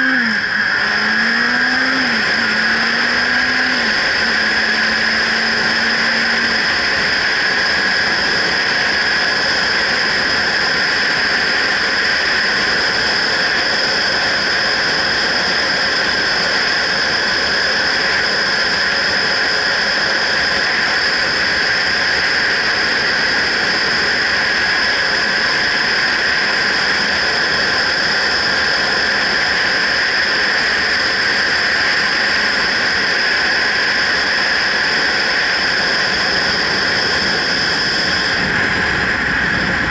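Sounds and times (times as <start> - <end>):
wind rush and road noise: 0.0 - 39.9.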